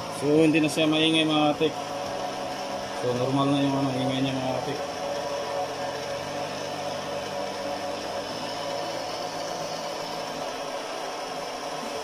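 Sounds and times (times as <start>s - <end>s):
blower fan motor whirring: 0.0s - 12.0s.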